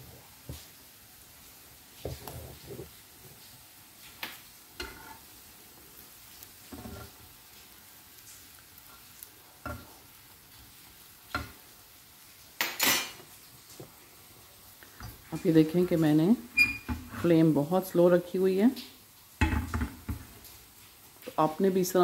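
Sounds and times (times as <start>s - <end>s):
faint sizzle on griddle: 0.0s - 22.0s
metal spatula scraping pan: 4.8s - 5.3s, 6.7s - 7.2s.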